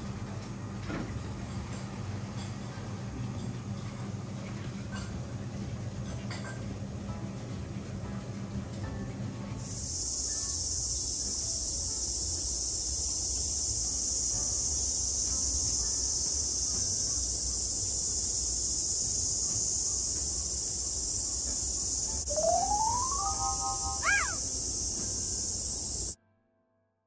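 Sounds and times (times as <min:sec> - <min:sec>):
insect chorus droning: 0:09.6 - 0:26.2.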